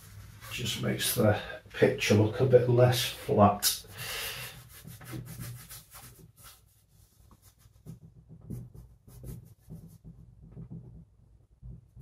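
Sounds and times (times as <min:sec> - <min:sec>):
scratchy paint brush strokes: 0:04.5 - 0:10.2.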